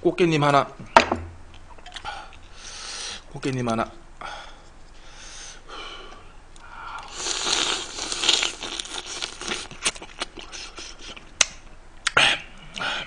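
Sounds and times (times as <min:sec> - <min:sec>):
crab shell crunching: 0:06.6 - 0:11.6.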